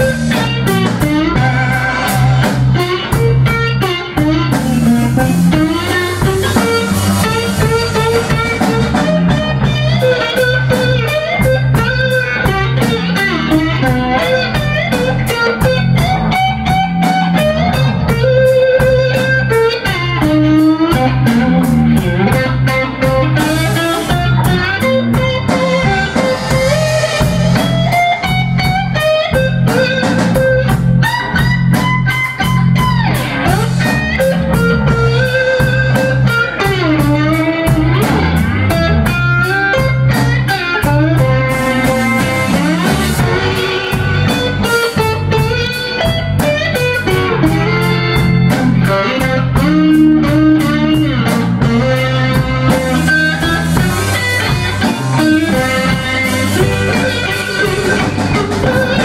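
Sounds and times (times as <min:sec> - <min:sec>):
blues band playing: 0:00.0 - 0:59.0.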